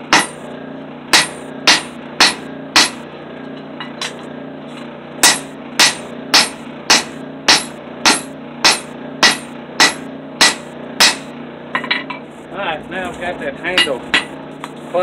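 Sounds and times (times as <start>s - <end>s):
hammer striking steel on anvil: 0.1s - 0.4s, 1.1s - 3.0s, 3.8s - 4.2s, 5.2s - 12.2s, 13.7s - 14.4s.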